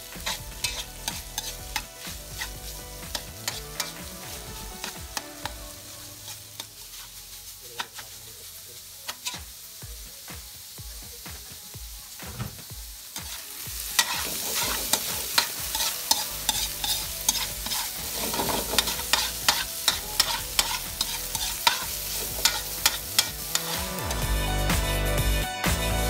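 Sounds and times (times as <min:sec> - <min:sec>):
metal spatula scraping a wok: 0:00.0 - 0:08.2, 0:13.2 - 0:24.3
food sizzling in a wok: 0:00.0 - 0:26.0.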